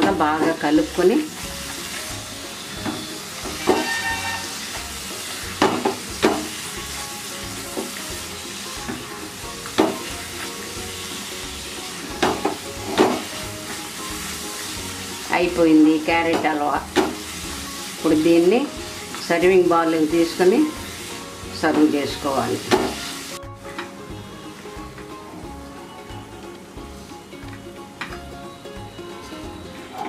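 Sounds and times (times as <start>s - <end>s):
sizzling mixture: 0.0s - 30.0s
spatula scraping pan: 2.6s - 4.8s.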